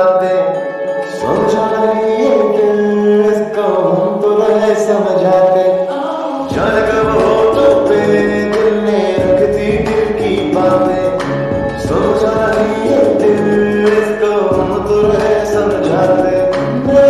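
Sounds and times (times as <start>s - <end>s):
song with singing voices: 0.0s - 17.0s
deep bass: 6.5s - 17.0s.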